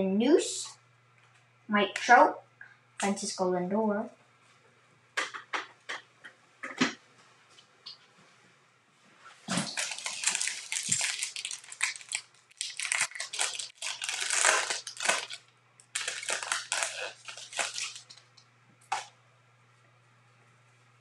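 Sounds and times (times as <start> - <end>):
wrapper crinkling and tearing: 9.5 - 19.1.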